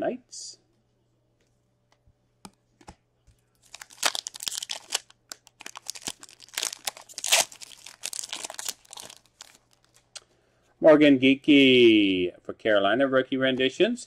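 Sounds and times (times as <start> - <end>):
wrapper tearing and crinkling: 3.6 - 10.1.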